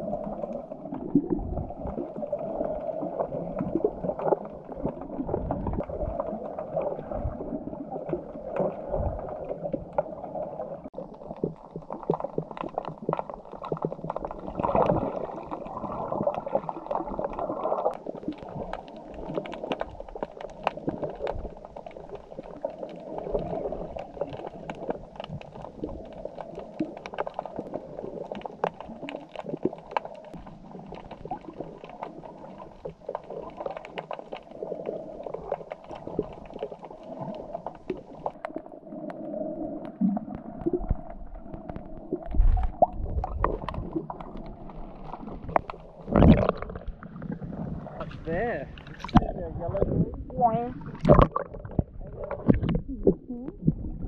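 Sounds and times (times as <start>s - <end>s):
underwater sloshing and gurgling: 0.0s - 54.0s
sharp underwater clicks: 39.8s - 47.4s, 50.8s - 53.6s.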